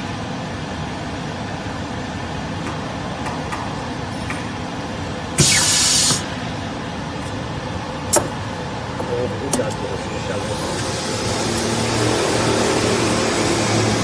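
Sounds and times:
compressed air hiss: 5.4 - 6.3.

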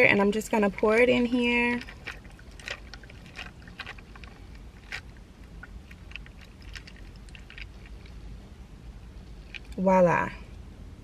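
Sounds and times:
low steady rumble: 0.0 - 11.0
ice cubes clicking and crackling: 0.1 - 8.2, 9.4 - 9.8
drink pouring over ice: 1.6 - 8.2.

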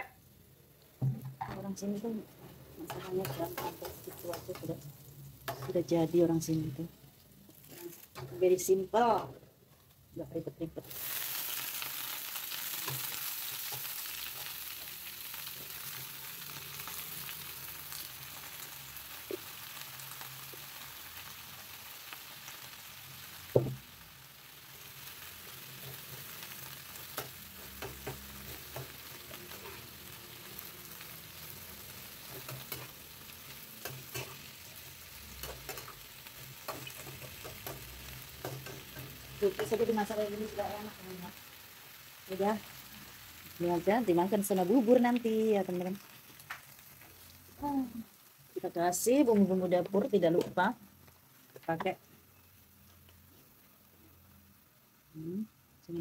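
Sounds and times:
cabbage sizzling in a frying pan: 0.0 - 56.0
metal spatula scraping a pan: 27.0 - 30.0, 31.5 - 39.3.

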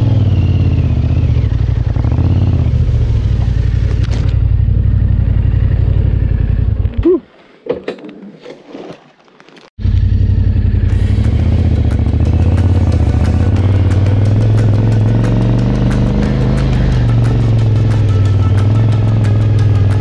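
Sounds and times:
motorcycle engine running: 0.0 - 7.0, 9.8 - 20.0
background music with a beat: 10.9 - 20.0.

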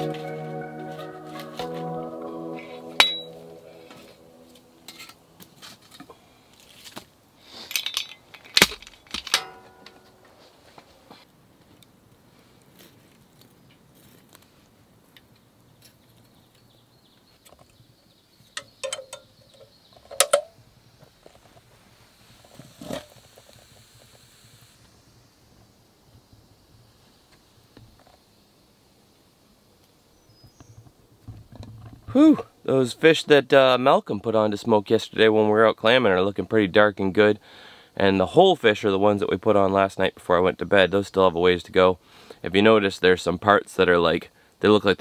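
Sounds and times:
metal clinks against stones: 7.6 - 8.6.

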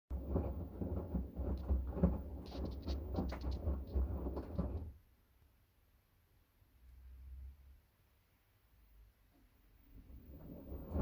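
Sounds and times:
washing machine tumbling wet load: 0.1 - 5.0, 9.9 - 11.0.

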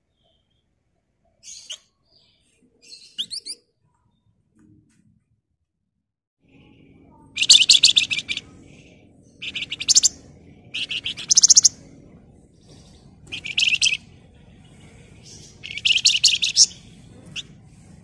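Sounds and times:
bird chattering trills: 7.4 - 8.5, 9.4 - 11.8, 13.3 - 14.0, 15.3 - 17.0.

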